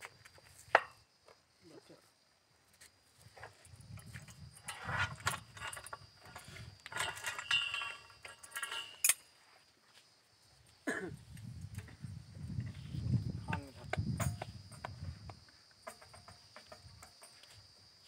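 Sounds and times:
metal clinks and scrapes of tools: 3.3s - 9.4s, 12.6s - 17.8s
sharp metal clank: 6.9s - 9.2s.

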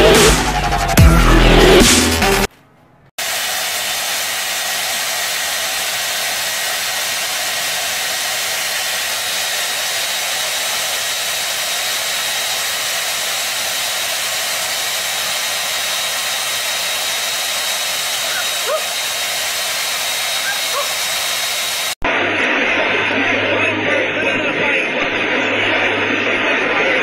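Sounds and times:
hair dryer running: 3.2s - 22.0s.

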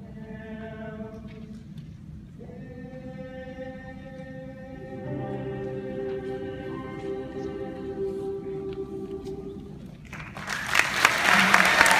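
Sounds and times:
choir singing sustained chords: 2.4s - 10.0s.

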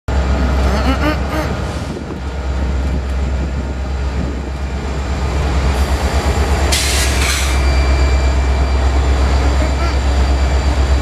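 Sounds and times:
locomotive engine rumble: 0.1s - 11.0s
wheels on rail: 1.5s - 11.0s
brief hiss: 6.7s - 7.6s.

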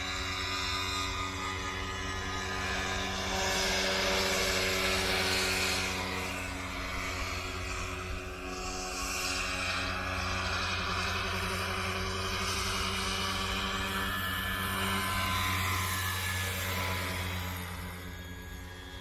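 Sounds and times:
electric motor whine: 0.0s - 19.0s.

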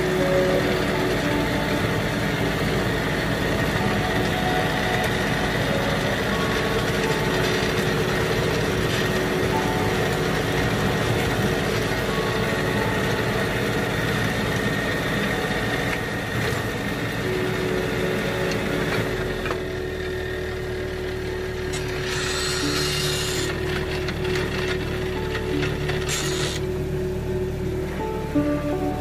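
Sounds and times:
tractor engine running: 0.0s - 29.0s.

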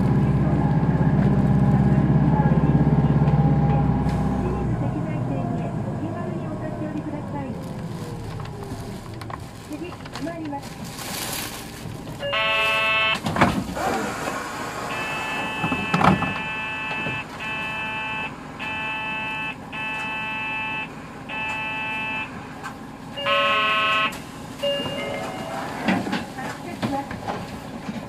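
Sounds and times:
bus engine rumble: 0.0s - 28.0s
electronic buzzer beeps: 12.3s - 13.2s, 14.9s - 22.3s, 23.2s - 24.1s.

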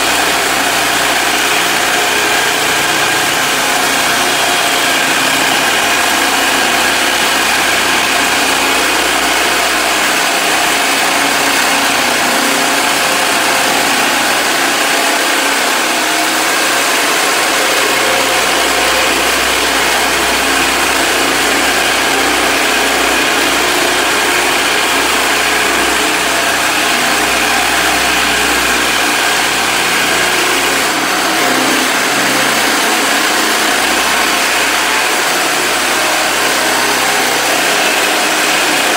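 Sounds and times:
blade scraping vinyl flooring: 0.0s - 38.9s
floor stripper motor drone: 0.0s - 38.9s.

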